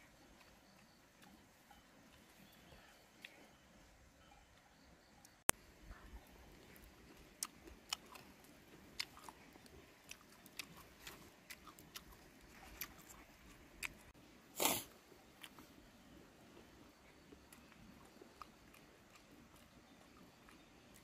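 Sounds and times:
mouth chewing food: 5.9 - 21.0.

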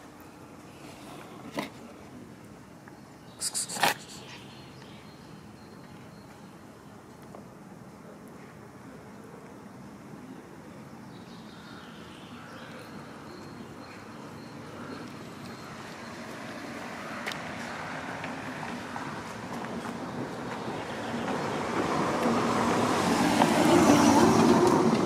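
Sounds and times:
vehicle rumble: 13.4 - 25.0.

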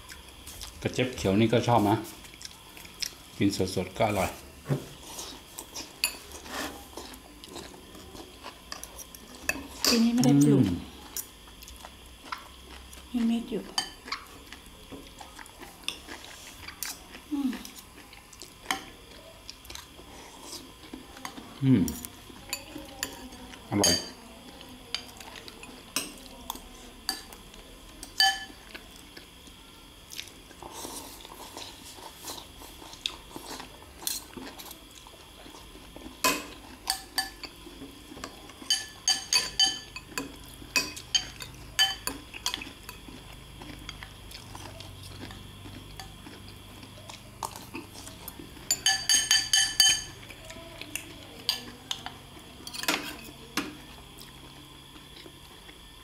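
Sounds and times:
cutlery clinking on ceramic bowls: 23.8 - 24.2, 28.0 - 28.7, 38.6 - 43.0, 48.6 - 50.2, 52.6 - 53.3.

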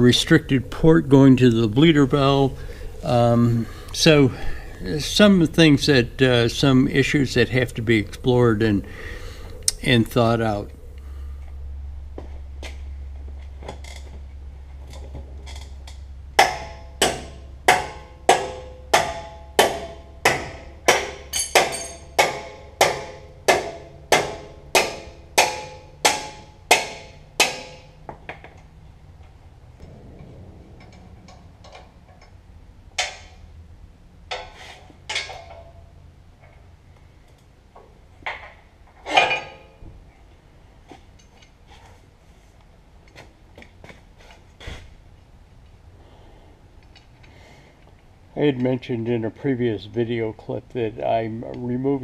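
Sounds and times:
hammer striking steel: 16.4 - 28.0.

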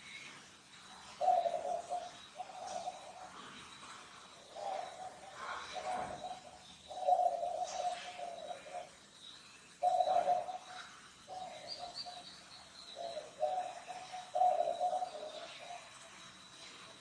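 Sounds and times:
bird cooing: 0.0 - 17.0.

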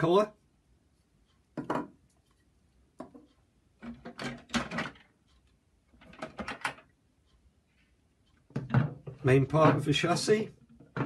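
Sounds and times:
plastic parts knocking on wood: 3.8 - 5.1, 8.5 - 9.9.

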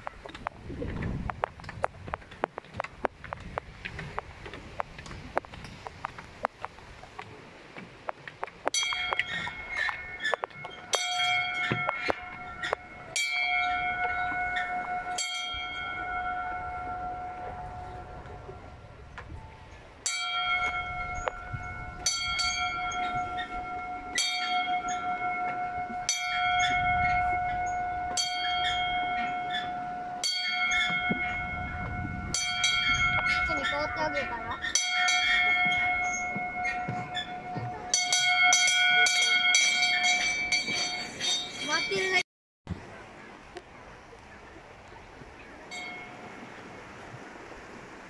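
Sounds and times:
small bell ringing: 20.1 - 42.2.

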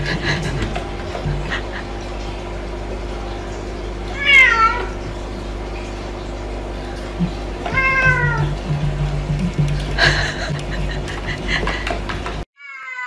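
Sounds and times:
cat meowing: 4.2 - 4.9, 12.6 - 13.0.

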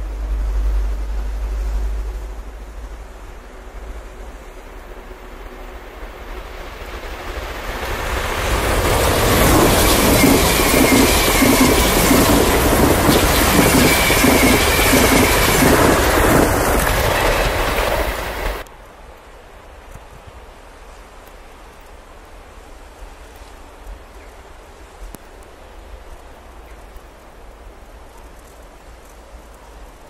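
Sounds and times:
train passing at speed: 0.0 - 18.7
rhythmic wheel clatter: 6.6 - 18.6
high whine: 8.8 - 18.6.

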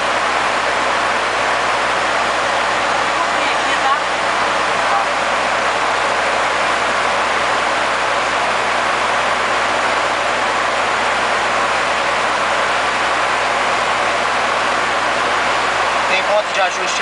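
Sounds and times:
turboprop engines droning: 0.0 - 17.0.

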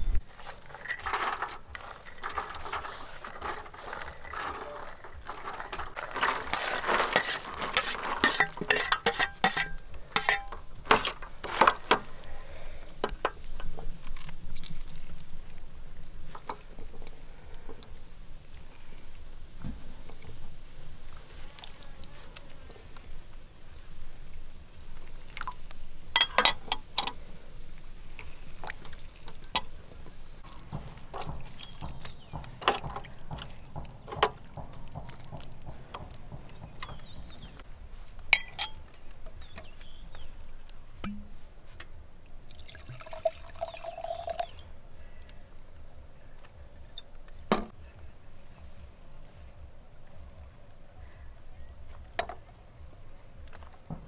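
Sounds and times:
liquid pouring and trickling: 28.0 - 29.7, 42.2 - 44.7
sharp clicks and knocks: 30.4 - 37.6.

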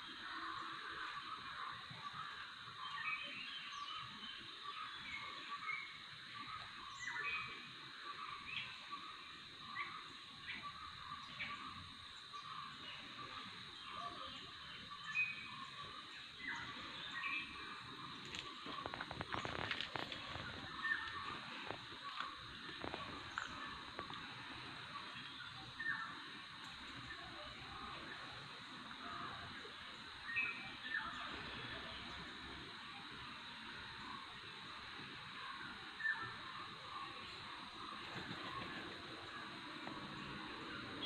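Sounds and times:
steady high-pitched hiss: 0.0 - 41.0
bird chirps: 2.8 - 24.3.

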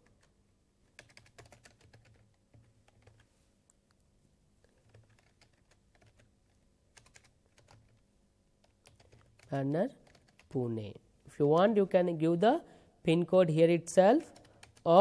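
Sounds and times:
keyboard typing: 0.9 - 3.3, 4.7 - 8.0, 8.6 - 10.5, 14.4 - 14.9.

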